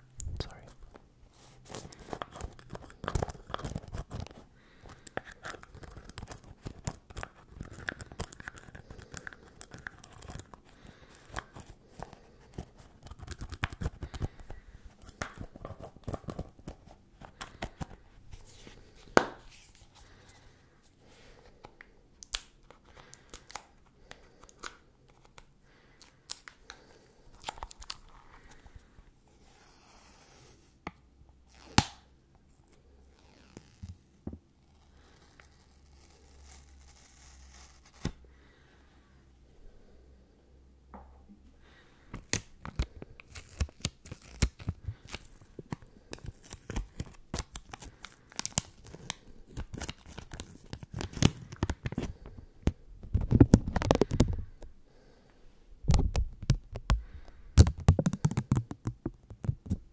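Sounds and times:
fingers tapping on a small box: 0:57.6 - 0:59.7.

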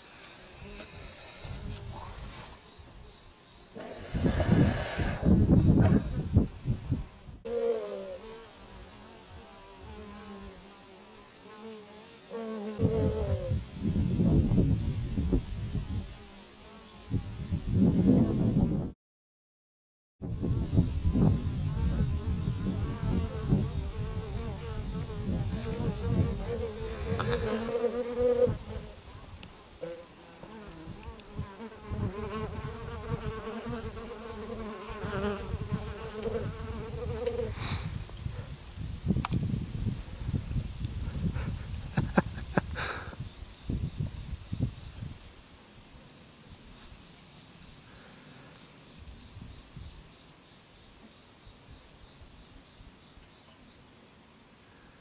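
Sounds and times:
faint high insect chirping: 0:00.0 - 0:18.6, 0:20.4 - 0:55.0
bees buzzing: 0:21.6 - 0:29.0.

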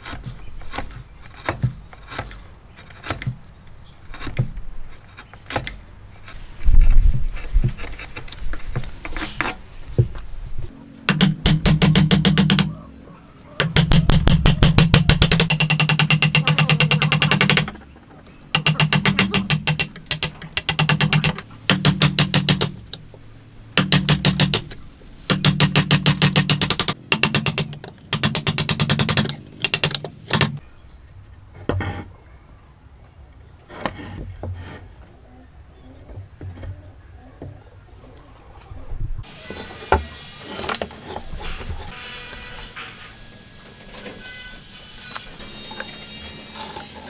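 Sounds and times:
saw cutting wood: 0:39.2 - 0:47.0.

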